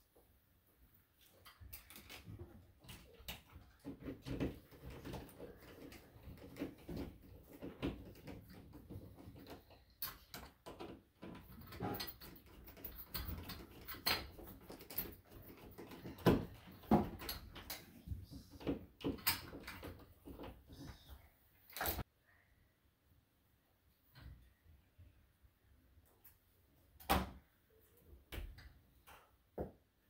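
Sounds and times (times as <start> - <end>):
light fixture cord clicks and rustles: 1.2 - 20.8.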